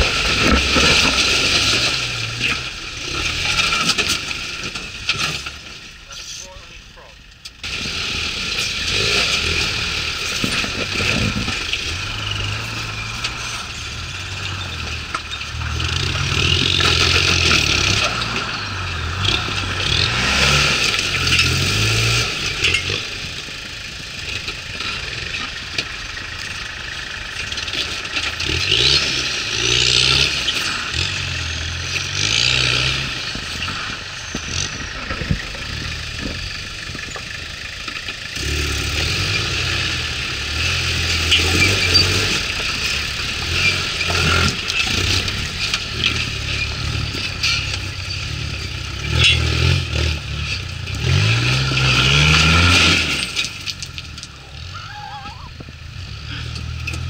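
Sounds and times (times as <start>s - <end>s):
rocks crunching under tyres: 0.0s - 57.0s
truck engines revving: 0.0s - 57.0s.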